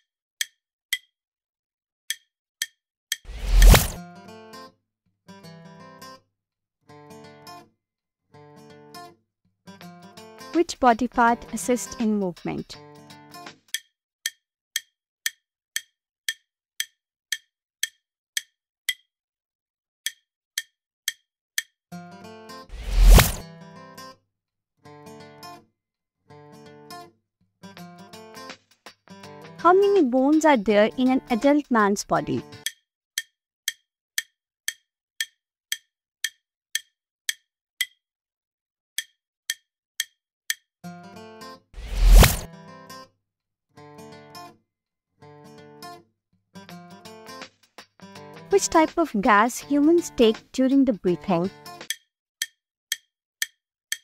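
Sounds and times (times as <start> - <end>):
clock-like timer ticks: 0.0 - 1.1, 2.1 - 3.8, 13.7 - 19.1, 20.0 - 21.8, 29.7 - 38.0, 39.0 - 40.7, 48.6 - 54.0.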